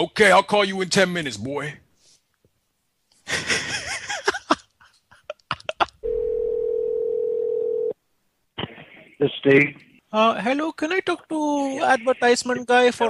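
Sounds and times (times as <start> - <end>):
telephone ringing tone: 6.0 - 8.0.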